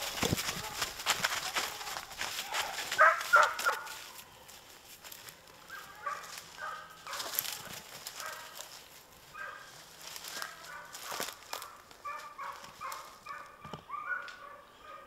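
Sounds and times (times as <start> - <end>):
footsteps in snow: 0.0 - 13.5
dogs barking and baying: 1.6 - 4.2, 5.5 - 15.0.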